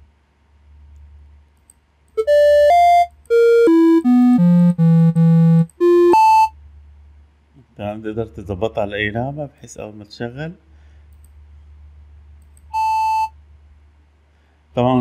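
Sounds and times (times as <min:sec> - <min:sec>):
synthesized beep notes: 0:12.8 - 0:13.3.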